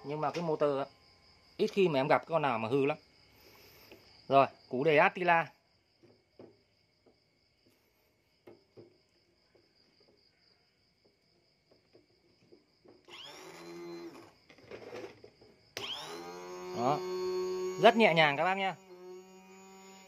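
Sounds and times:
starter motor whine: 13.1 - 15.2, 15.8 - 20.0.

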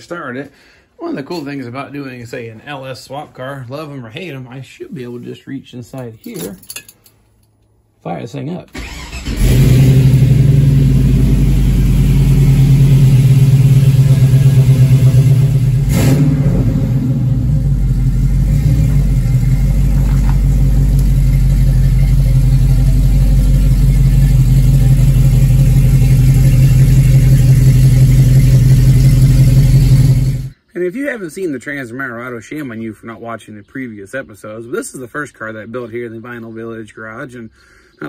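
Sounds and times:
car engine idling: 8.8 - 30.6.

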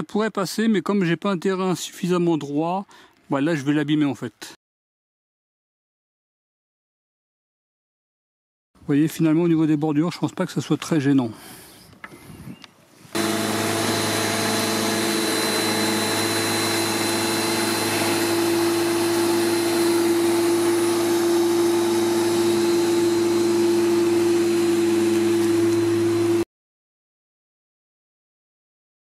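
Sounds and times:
electric lawnmower running: 13.2 - 26.5.

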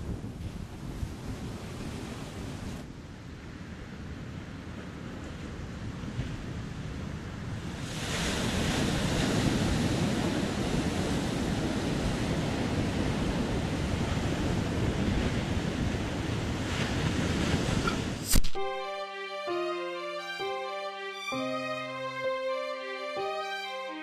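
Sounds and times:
wind buffeting microphone: 0.0 - 2.8
ocean surf breaking: 7.5 - 24.0
sharp click: 18.2 - 18.8
music: 18.6 - 24.0.

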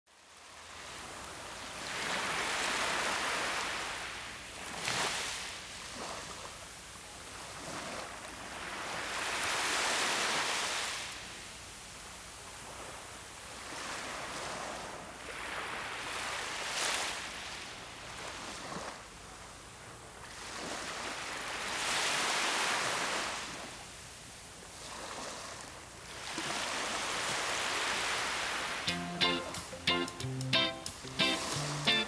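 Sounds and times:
small waves washing on sand: 0.2 - 28.9
surf splash: 7.4 - 11.3, 24.8 - 32.0.

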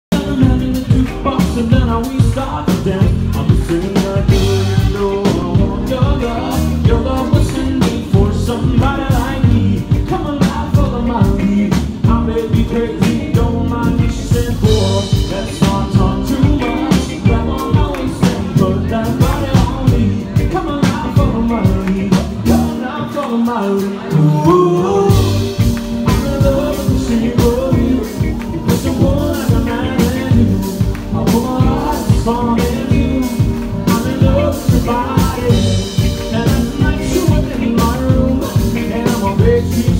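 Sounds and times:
drum kit: 0.0 - 39.9
electric guitar: 0.1 - 39.9
man and woman singing: 0.1 - 39.9.

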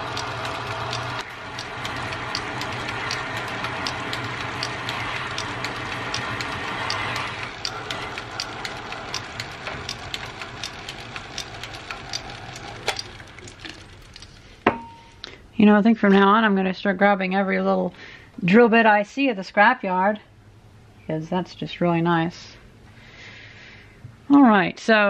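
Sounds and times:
lathe motor hum: 0.0 - 14.6
sharp ticking: 0.0 - 14.6.

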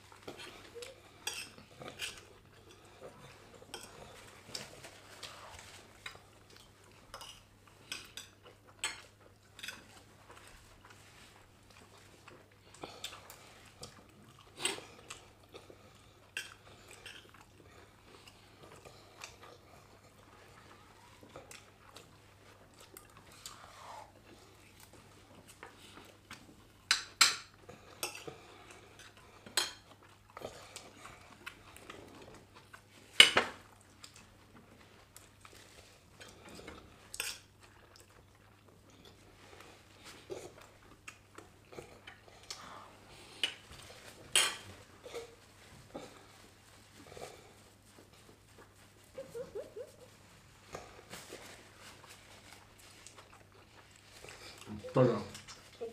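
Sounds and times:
soft chewing: 0.0 - 55.9
cutlery clinking on plates: 44.3 - 44.7.

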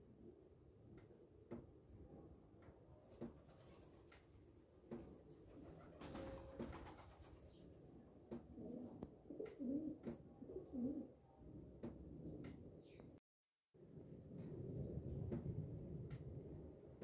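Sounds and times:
dove cooing: 8.5 - 11.2.

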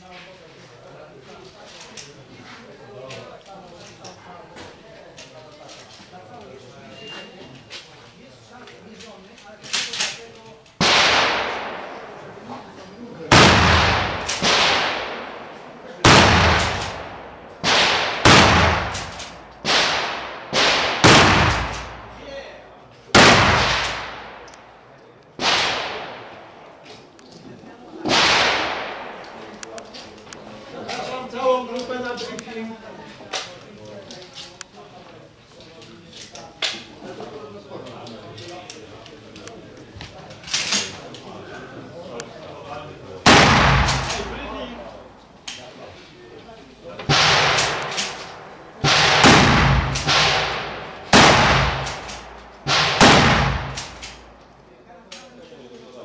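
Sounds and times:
loud gunshot with echo: 10.8 - 12.1, 13.3 - 22.2, 23.2 - 24.5, 28.1 - 29.2, 43.3 - 44.6, 47.1 - 54.2.

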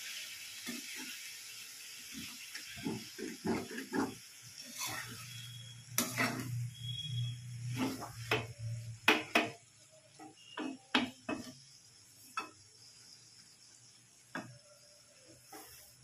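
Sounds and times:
spatula scraping wok: 0.6 - 9.0, 10.2 - 12.5, 15.3 - 16.0.

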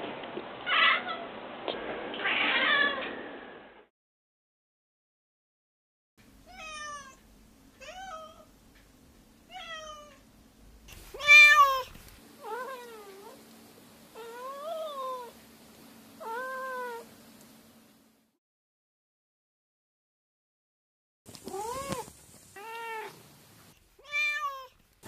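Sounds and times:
cat meowing: 6.5 - 7.2, 7.8 - 8.5, 9.5 - 10.2, 11.1 - 13.4, 16.2 - 17.1, 21.4 - 23.2, 24.0 - 24.8.

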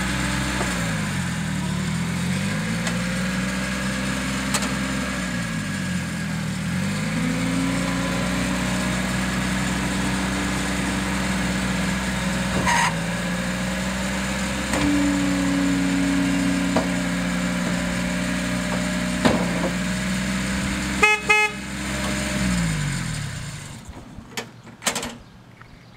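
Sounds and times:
utility vehicle engine running: 0.0 - 25.1
short horn toots: 20.9 - 21.8.

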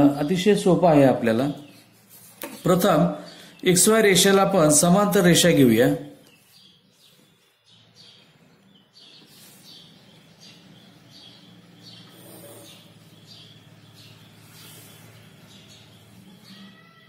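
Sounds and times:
bird chirping: 0.0 - 17.0.

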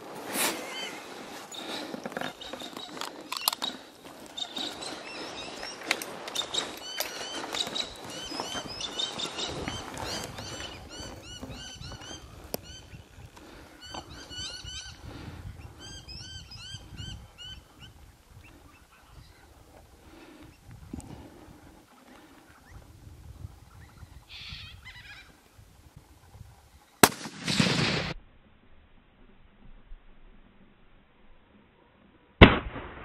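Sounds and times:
birds chirping: 0.5 - 25.4.

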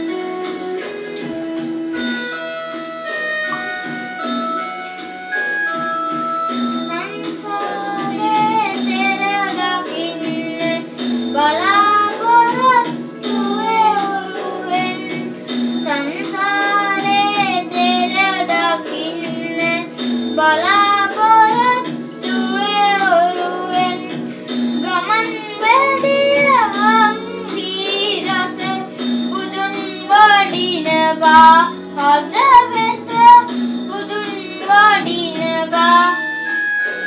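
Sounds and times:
instrumental accompaniment: 0.0 - 37.0
children singing: 6.8 - 36.2.

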